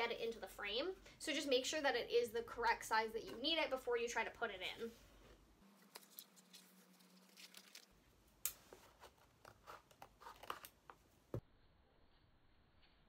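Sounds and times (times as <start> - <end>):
crackles of cork and cardboard handled: 5.7 - 11.4.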